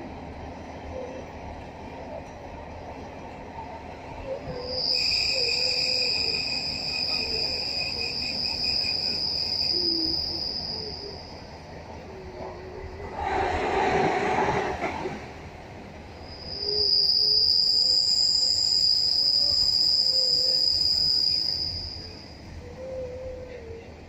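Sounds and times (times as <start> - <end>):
train wheels rumbling on track: 0.0 - 24.0
high-pitched wheel squeal: 4.4 - 11.4, 16.3 - 22.6
rush of noise: 12.7 - 17.4.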